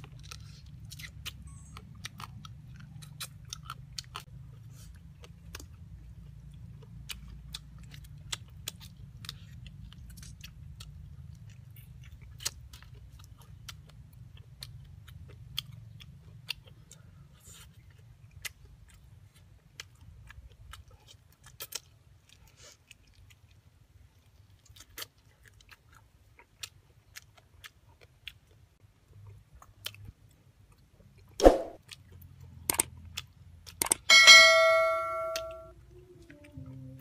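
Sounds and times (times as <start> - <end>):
person chewing and crunching: 0.0 - 34.1.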